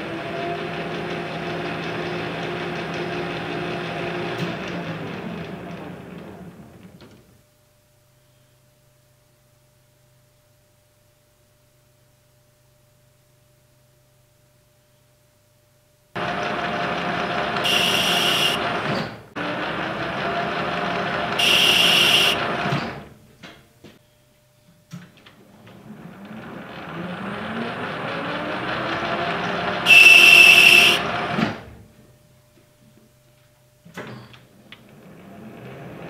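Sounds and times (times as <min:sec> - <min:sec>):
metal lathe running: 0:16.2 - 0:22.8, 0:26.1 - 0:31.3.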